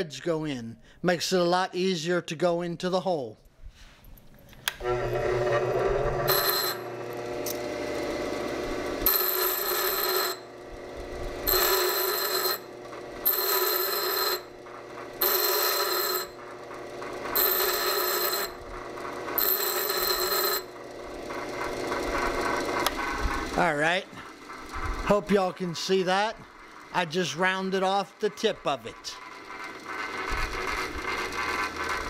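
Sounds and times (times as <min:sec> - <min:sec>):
high grinding whine of bolt: 0:04.6 - 0:32.0
bench grinder running: 0:04.8 - 0:32.0.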